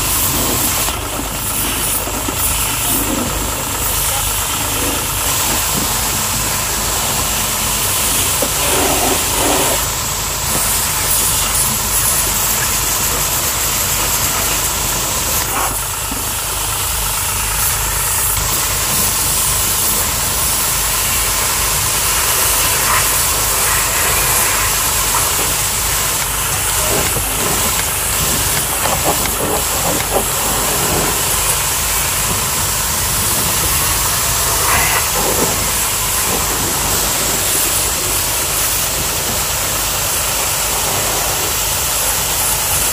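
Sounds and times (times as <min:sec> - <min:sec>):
high-pressure water jet hissing: 0:00.0 - 0:42.9
pressure washer pump motor: 0:00.0 - 0:42.9.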